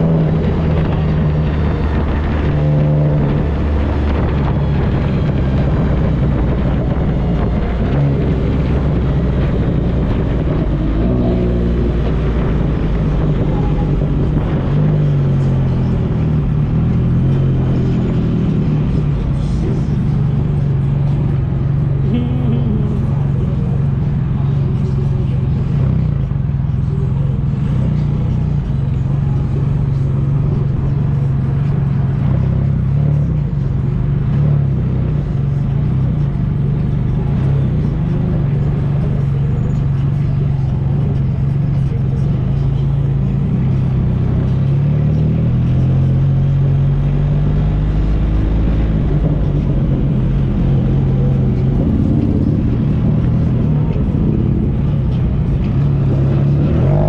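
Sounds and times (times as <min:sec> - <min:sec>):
vehicle engine droning: 0:00.0 - 0:57.0.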